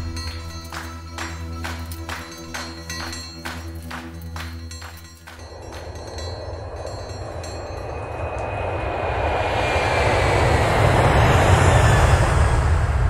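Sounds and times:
faint falling whine: 0:05.4 - 0:13.0
jet engine roar: 0:05.7 - 0:13.0.

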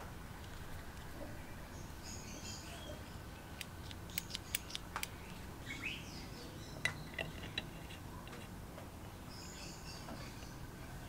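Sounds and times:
low steady background noise: 0:00.0 - 0:11.0
nut threads scraping: 0:03.6 - 0:05.4, 0:06.8 - 0:08.5.

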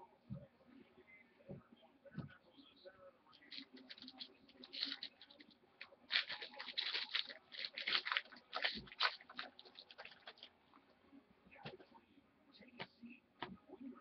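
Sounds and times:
trading cards scraping and flicking: 0:03.4 - 0:10.5.

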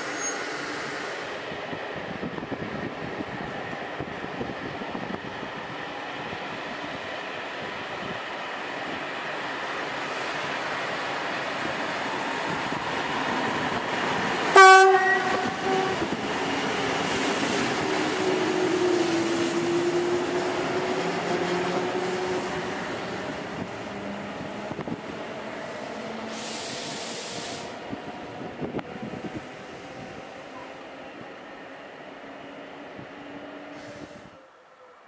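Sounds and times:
humming tone of trains: 0:00.0 - 0:35.0
train horn blast: 0:14.5 - 0:16.2.

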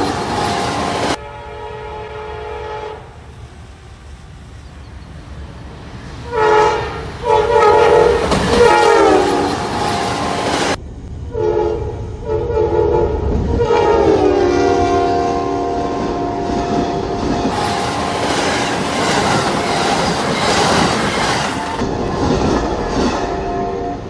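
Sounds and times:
locomotive air horn blasts: 0:00.0 - 0:03.3, 0:06.2 - 0:10.6, 0:11.3 - 0:18.3, 0:23.1 - 0:24.0
train rumble and wheel clatter: 0:00.0 - 0:24.0.

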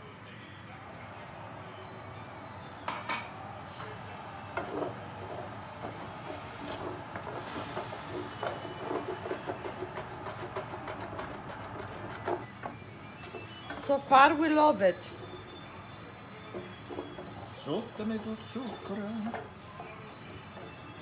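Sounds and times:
wine sizzling in a hot pan: 0:01.1 - 0:12.4.

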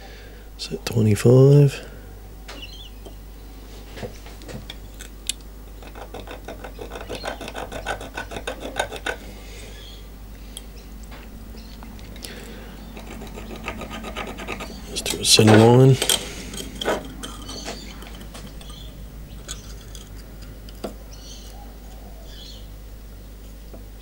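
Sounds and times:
scriber scratching metal plate: 0:05.8 - 0:09.3, 0:12.8 - 0:20.6.

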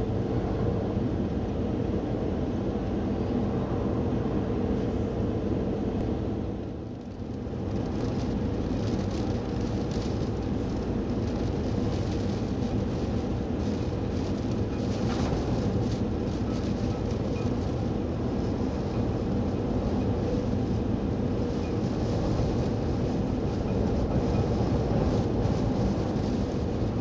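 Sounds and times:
wind buffeting microphone: 0:07.5 - 0:27.0.

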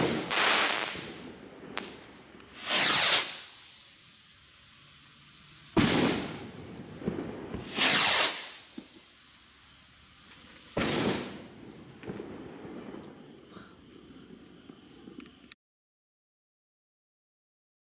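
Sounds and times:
firework bang: 0:00.0 - 0:03.6, 0:05.7 - 0:09.1, 0:10.4 - 0:13.2
firework rocket whoosh: 0:00.0 - 0:13.6.

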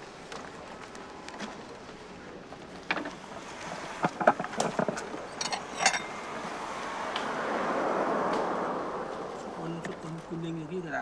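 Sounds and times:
steady outdoor hiss: 0:00.0 - 0:11.0
wooden cart knocks and clinks: 0:02.8 - 0:03.2, 0:03.8 - 0:06.0.

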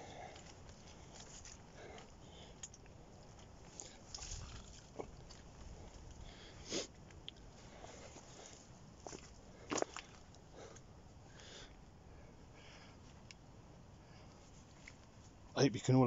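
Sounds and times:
footsteps squelching in mud: 0:07.8 - 0:10.4.

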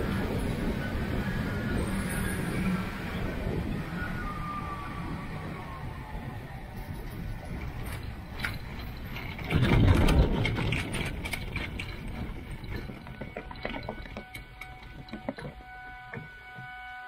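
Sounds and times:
trike rattling over grass: 0:06.8 - 0:16.6.

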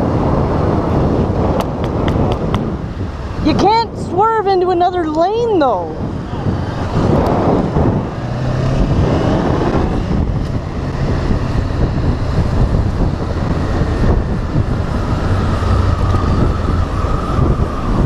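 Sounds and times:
wind on microphone: 0:00.0 - 0:18.0
motorcycle engine running: 0:06.0 - 0:17.9.

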